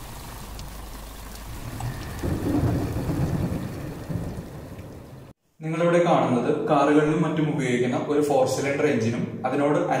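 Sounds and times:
steady rain: 0.0 - 5.4
thunder rumble: 1.3 - 5.3.

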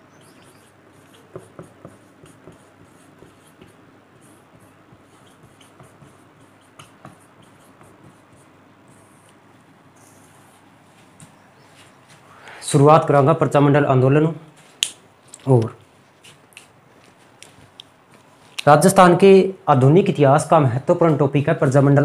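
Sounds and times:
marker writing on whiteboard: 0.0 - 12.2.

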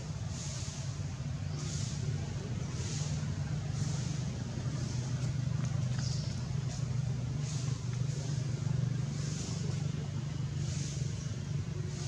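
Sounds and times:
low motor hum: 2.1 - 12.0.

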